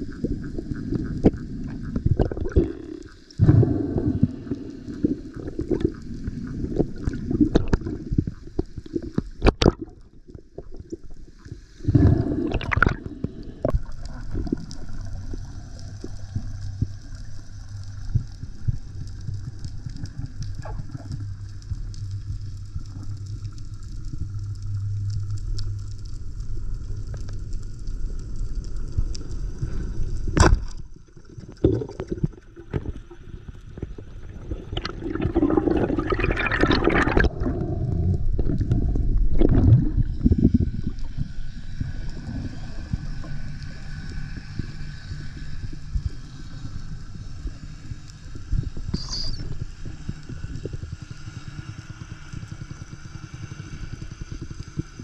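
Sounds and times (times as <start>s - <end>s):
water sloshing and gurgling: 0.0s - 24.7s, 29.2s - 44.5s
low steady hum: 0.0s - 55.0s.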